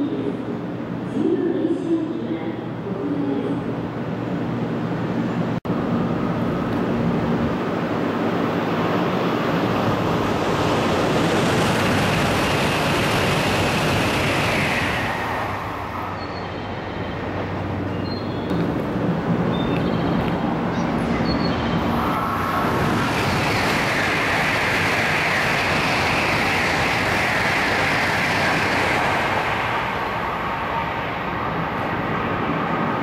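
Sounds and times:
train rushing past: 0.0s - 33.0s
high whine sliding down: 21.8s - 32.7s.

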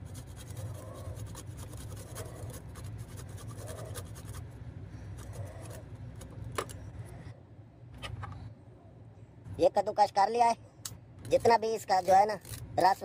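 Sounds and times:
garlic scraping on metal grater: 0.0s - 4.5s.

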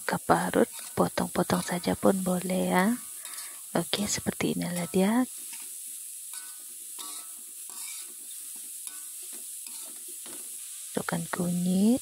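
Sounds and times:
hot oil sizzling: 0.0s - 12.0s
metal spatula scraping wok: 0.6s - 3.7s, 4.7s - 10.8s.

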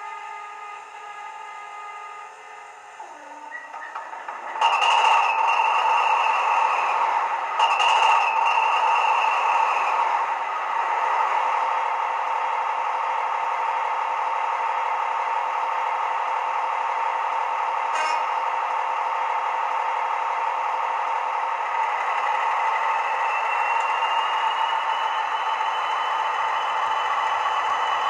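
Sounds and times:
turbocharger whistle: 0.0s - 10.3s, 21.9s - 28.0s
diesel engine idling through speaker: 0.0s - 28.0s.

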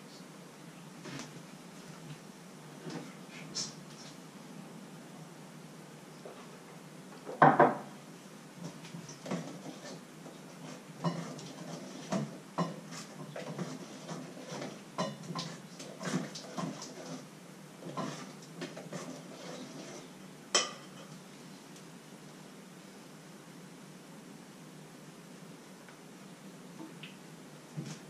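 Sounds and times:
pots lids and utensils clinking: 11.0s - 17.2s, 20.5s - 21.2s.

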